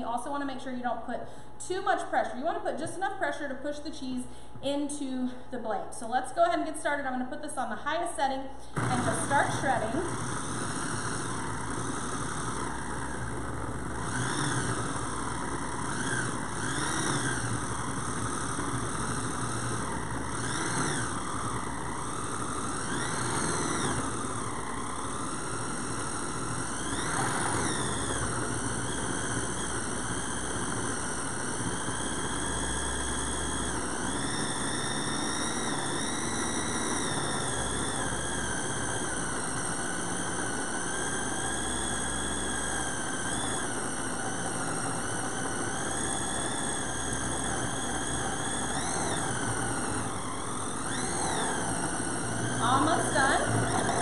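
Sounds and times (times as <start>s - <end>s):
food processor motor whining: 0.0s - 54.0s.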